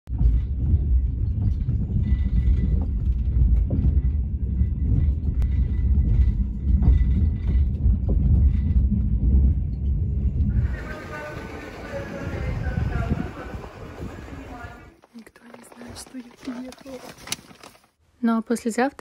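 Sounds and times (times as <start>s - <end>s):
knocks and clicks: 0.1s - 10.5s
train carriage rumbling and rattling: 0.1s - 17.8s.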